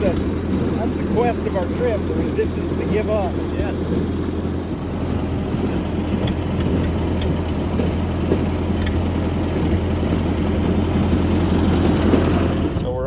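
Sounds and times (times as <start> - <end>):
rail motor car rolling on rails: 0.0 - 13.0.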